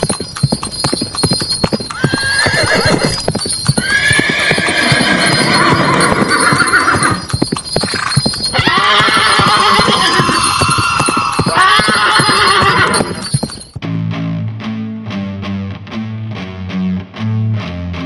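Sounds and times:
horse hooves clip-clopping: 0.0s - 13.8s
horse whinnying: 1.8s - 13.7s.

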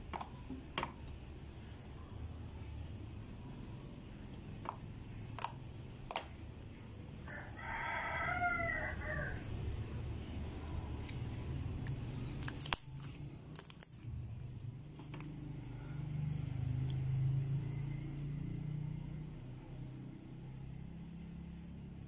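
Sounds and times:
slime popping: 4.6s - 6.3s, 12.4s - 14.0s.

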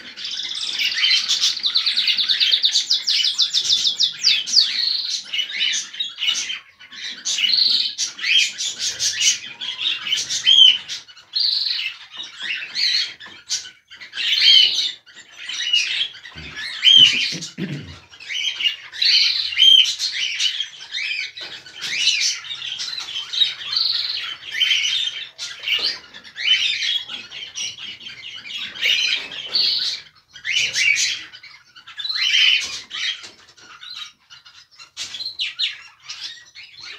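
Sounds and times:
cockatiels chirping and calling: 0.0s - 36.9s.

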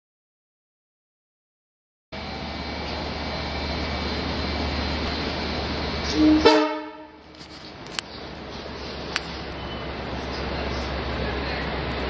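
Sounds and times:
train wheels rumbling on rail: 2.2s - 12.0s
train horn toot: 6.1s - 7.2s.

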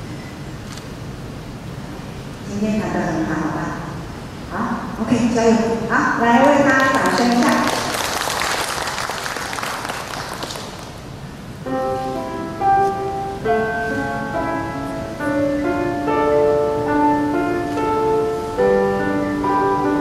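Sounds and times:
audience applause: 6.8s - 11.1s
slow grand piano melody: 11.6s - 20.0s.

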